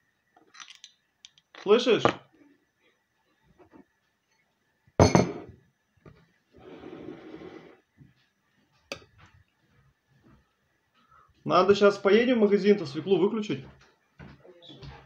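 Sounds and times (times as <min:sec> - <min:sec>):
sharp knock on bowl: 0:05.0 - 0:05.4.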